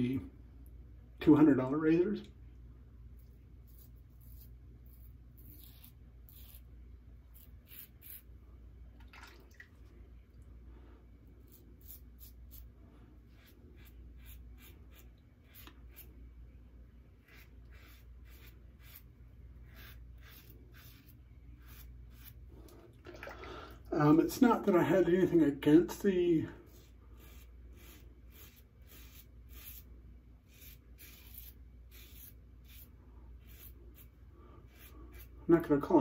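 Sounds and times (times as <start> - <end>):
razor scraping stubble: 3.2 - 8.3, 11.4 - 16.2, 17.2 - 22.5, 26.6 - 36.0.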